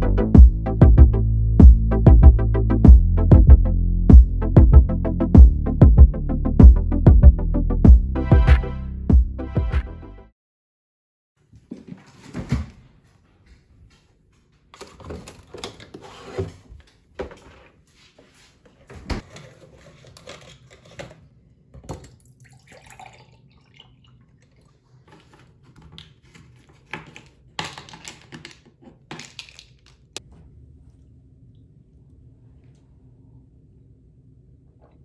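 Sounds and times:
juice pouring into glass: 0:22.2 - 0:25.0.

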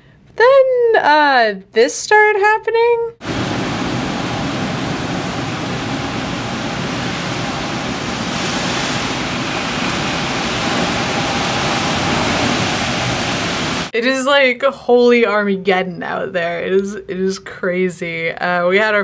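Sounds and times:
heavy rain downpour: 0:03.2 - 0:13.9
gusting wind: 0:03.2 - 0:14.0.

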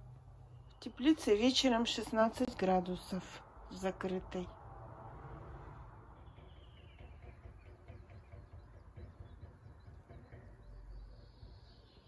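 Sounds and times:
faint birdsong chirps: 0:00.0 - 0:04.6, 0:05.8 - 0:12.0
low background rumble: 0:00.0 - 0:12.0.

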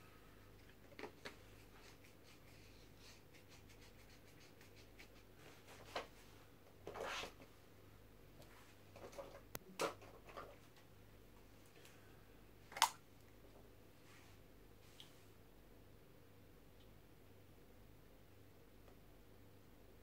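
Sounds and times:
faint low hum: 0:00.0 - 0:20.0
soft rustles and rubs: 0:01.0 - 0:07.6, 0:08.4 - 0:09.5, 0:13.6 - 0:15.4
scrape: 0:01.6 - 0:07.4.

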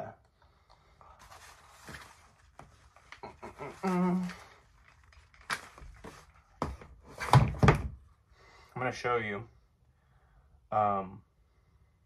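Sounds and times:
soft rustling: 0:01.0 - 0:06.8.

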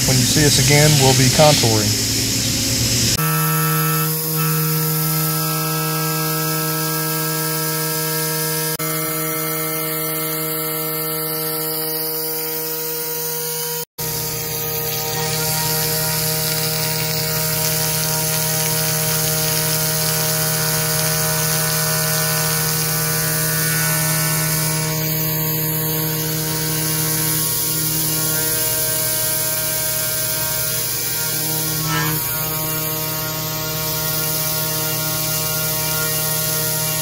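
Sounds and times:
cnc router spindle hum: 0:00.0 - 0:37.0
end mill cutting aluminium: 0:14.0 - 0:37.0.

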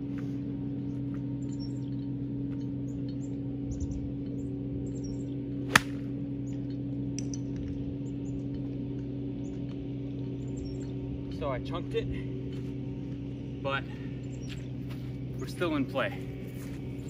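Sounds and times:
steady low hum: 0:00.0 - 0:17.0
birds chirping: 0:00.6 - 0:06.9, 0:07.9 - 0:17.0
golf club striking ball: 0:05.7 - 0:06.1.

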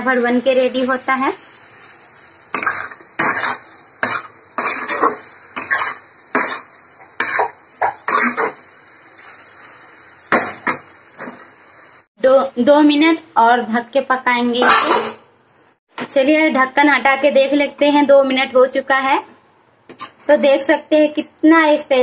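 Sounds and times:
metal spatula scraping a pan: 0:02.5 - 0:08.6, 0:19.9 - 0:20.4.

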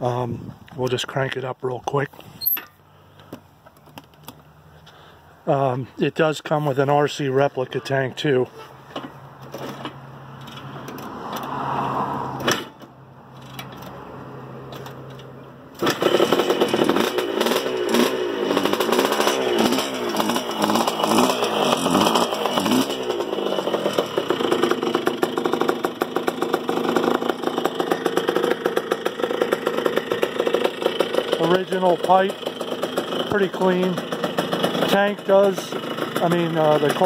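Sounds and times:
motorcycle engine revving and idling: 0:14.8 - 0:37.0.

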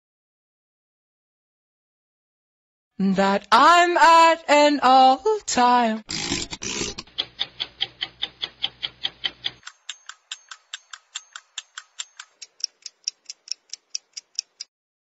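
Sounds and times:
clock-like ticking: 0:06.2 - 0:14.7.

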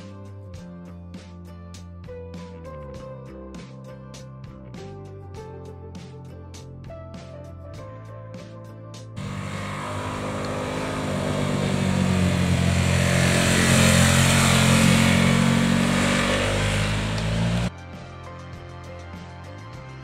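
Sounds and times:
motorcycle engine passing: 0:09.2 - 0:17.7.

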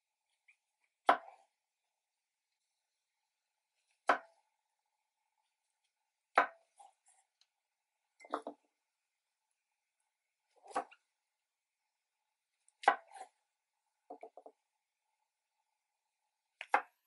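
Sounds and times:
knife chopping on wooden board: 0:01.0 - 0:01.4, 0:04.0 - 0:04.4, 0:12.8 - 0:13.3.

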